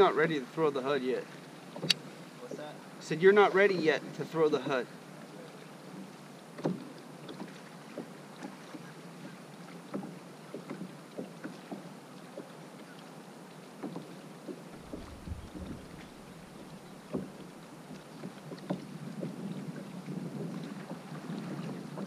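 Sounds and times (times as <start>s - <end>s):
water lapping against hull: 0.0s - 22.0s
soft taps and knocks: 6.0s - 12.5s, 13.8s - 19.5s
wind rumble on microphone: 14.7s - 18.0s, 18.6s - 22.0s.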